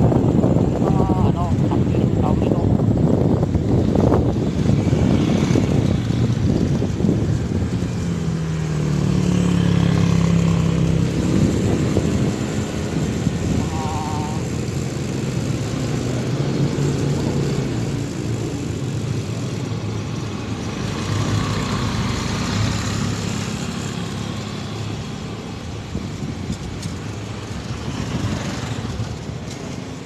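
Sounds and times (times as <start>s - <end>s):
motorcycle engine running: 0.0s - 25.0s
road and wind noise: 0.0s - 30.0s
motorcycle passing: 2.2s - 30.0s.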